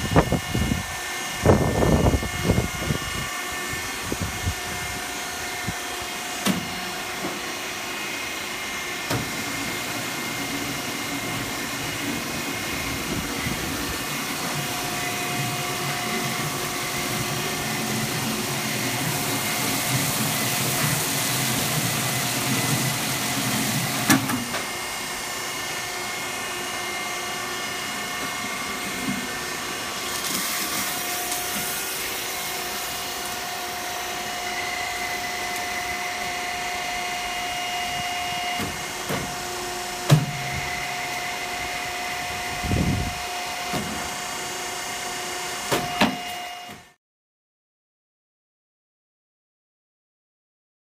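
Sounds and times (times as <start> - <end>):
press machine humming: 9.0 - 41.8.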